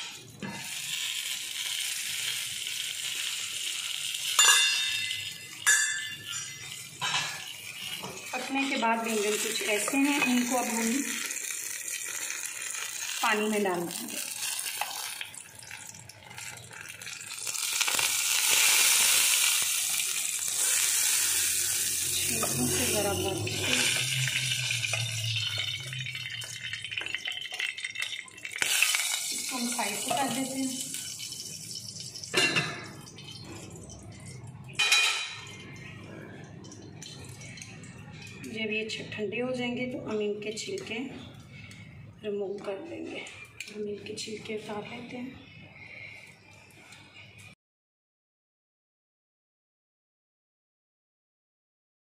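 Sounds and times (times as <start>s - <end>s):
metal tongs clinking on bowl: 4.4s - 10.5s
tongs clicking and scraping pot: 22.1s - 32.4s, 36.6s - 38.6s.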